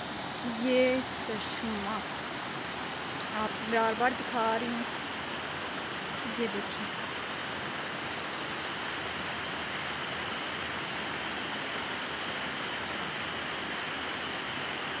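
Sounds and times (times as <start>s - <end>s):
stream running over rocks: 0.0s - 15.0s.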